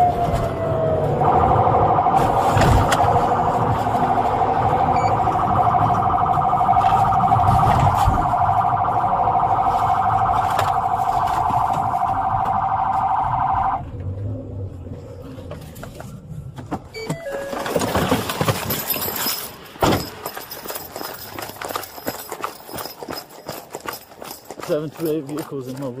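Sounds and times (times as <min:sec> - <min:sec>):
police siren warbling: 0:00.0 - 0:14.7
engine and road rumble: 0:00.0 - 0:26.0.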